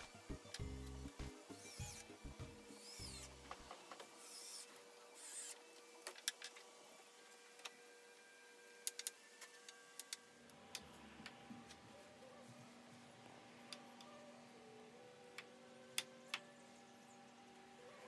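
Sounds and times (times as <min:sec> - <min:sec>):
screwdriver whirring: 0:00.0 - 0:11.8.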